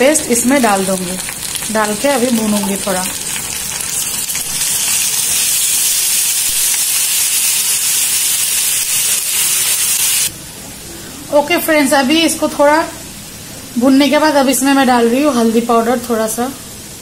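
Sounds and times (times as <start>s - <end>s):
paste sizzling in hot oil: 0.2s - 10.3s.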